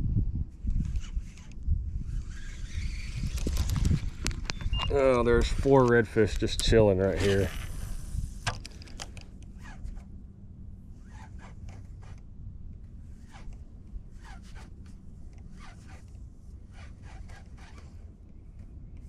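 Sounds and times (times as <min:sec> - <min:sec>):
low steady rumble: 0:00.0 - 0:19.0
spinning reel cranking: 0:02.0 - 0:04.1.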